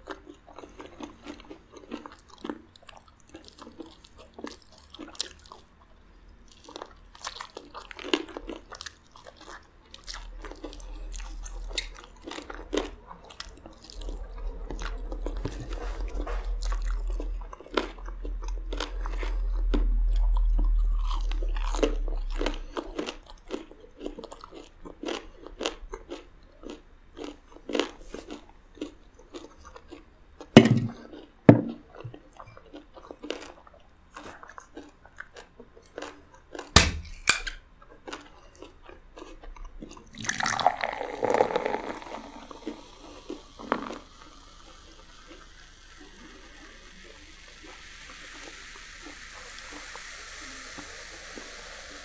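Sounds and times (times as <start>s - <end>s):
crunching and chewing fried chicken: 0.0s - 52.0s
soda pouring into a glass: 40.1s - 52.0s.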